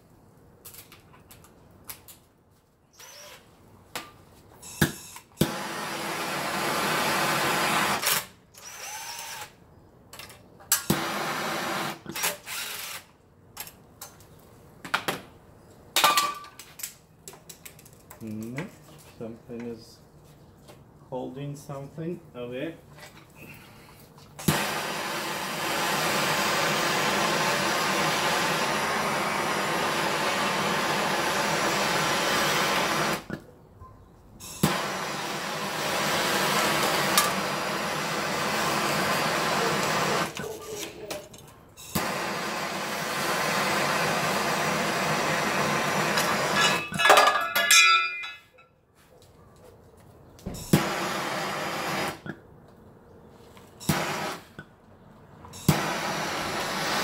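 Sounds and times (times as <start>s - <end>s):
heat gun blowing hot air: 5.4s - 8.1s, 24.4s - 33.3s, 34.6s - 40.4s, 41.9s - 46.8s, 50.7s - 52.2s, 53.8s - 54.6s, 55.6s - 57.0s.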